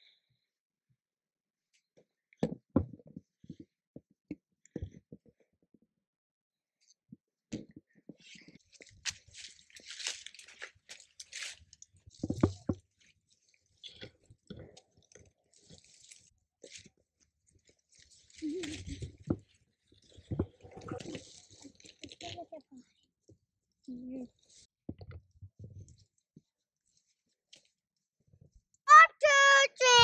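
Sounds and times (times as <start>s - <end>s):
leaves and twigs rustling: 8.6s - 13.8s, 17.6s - 20.3s.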